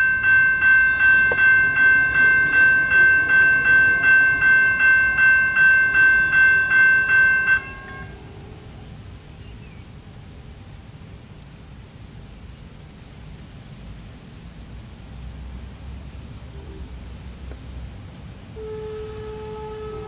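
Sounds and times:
steady low rumble: 0.0s - 12.8s.

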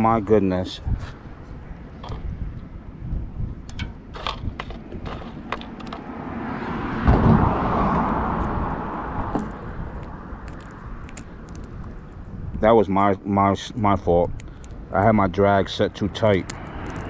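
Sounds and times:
vehicle passing on bridge: 4.8s - 11.0s.

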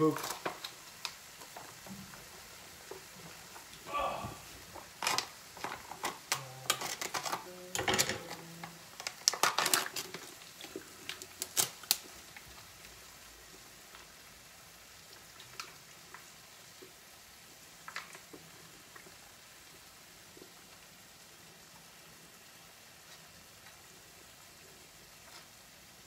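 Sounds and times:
containers and utensils clattering: 4.8s - 8.4s, 9.0s - 11.7s.

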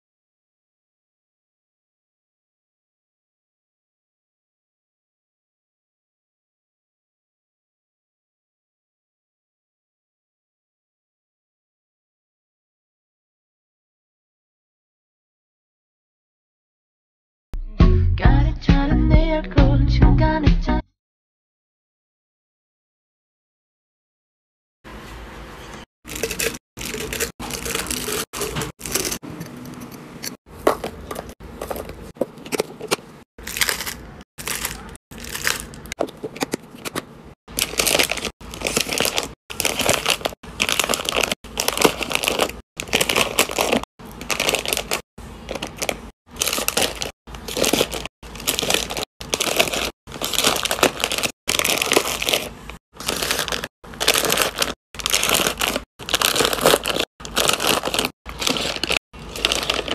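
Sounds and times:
plastic wrappers crinkling: 26.1s - 29.2s, 30.8s - 36.9s, 37.5s - 59.9s.

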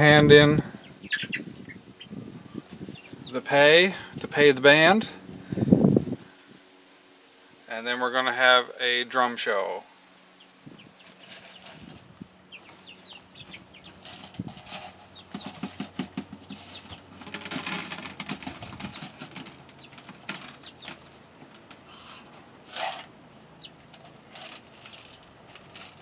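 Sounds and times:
hens clucking: 0.4s - 3.5s, 10.4s - 25.2s
buckets knocking and rustling: 13.4s - 21.9s.

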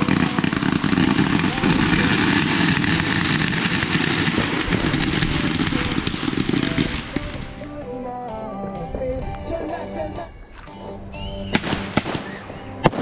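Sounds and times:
fireworks crackling: 0.0s - 8.0s, 11.5s - 13.0s
background music: 0.0s - 13.0s.

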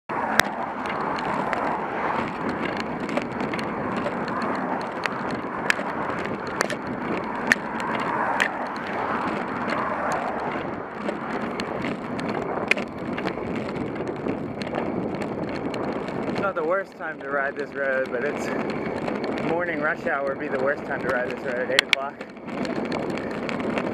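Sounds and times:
bike clicks and rattles: 0.1s - 23.9s.

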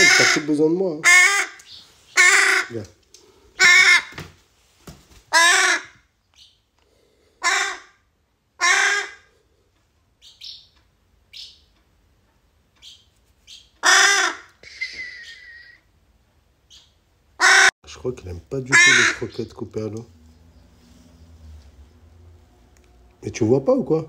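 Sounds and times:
crow cawing: 0.0s - 2.8s, 3.6s - 4.2s, 5.3s - 6.0s, 7.4s - 8.0s, 8.6s - 9.3s, 13.8s - 14.6s, 17.4s - 17.7s, 18.7s - 19.4s.

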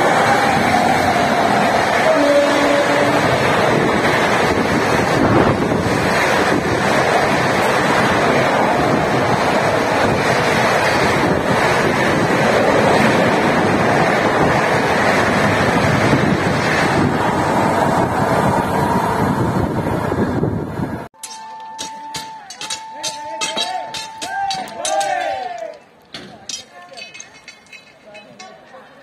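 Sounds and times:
wind buffeting microphone: 0.0s - 21.1s
train wheels rushing on rails: 0.0s - 29.0s.

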